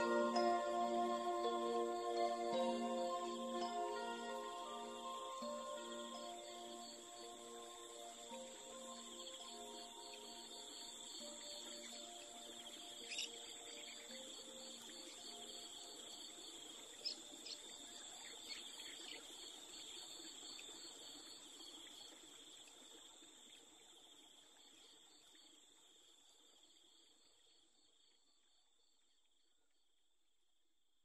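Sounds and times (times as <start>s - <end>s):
soft low music: 0.0s - 17.5s
crickets trilling: 0.0s - 27.9s.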